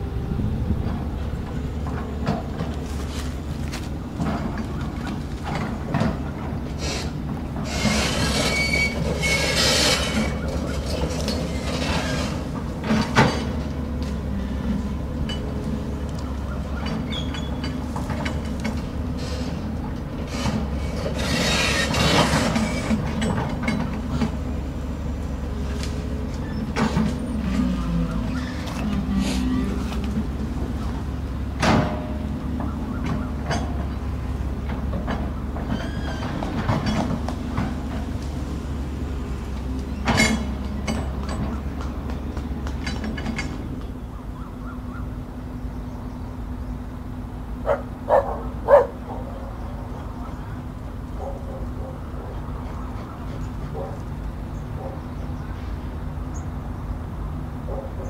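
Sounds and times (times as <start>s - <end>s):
excavator diesel engine running: 0.0s - 58.0s
metallic clanks and squeaks: 4.2s - 13.8s, 14.9s - 24.6s, 26.3s - 30.4s, 31.6s - 38.2s, 39.6s - 44.1s
machine clanking: 4.2s - 14.1s, 33.0s - 38.2s, 39.9s - 42.0s
dog barking: 47.6s - 49.5s, 51.2s - 52.4s, 53.7s - 54.0s, 54.8s - 55.0s, 57.7s - 58.0s.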